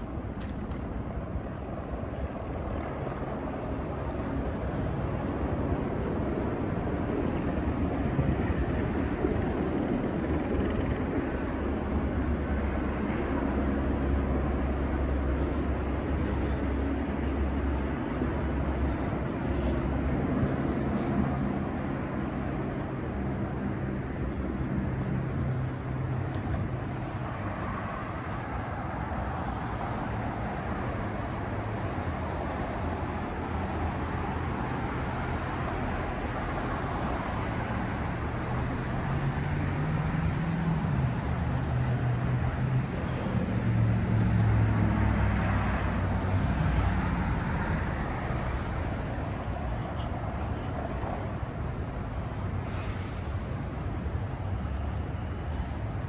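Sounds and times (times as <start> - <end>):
street traffic hum: 0.0 - 56.0.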